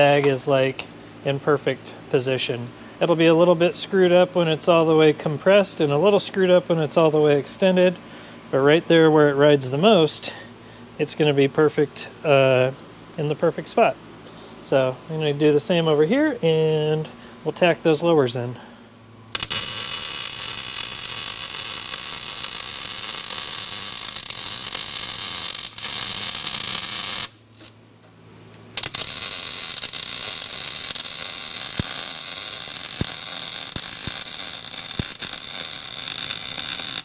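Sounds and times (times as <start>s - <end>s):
welder crackling hiss: 19.4s - 27.8s, 28.7s - 37.0s.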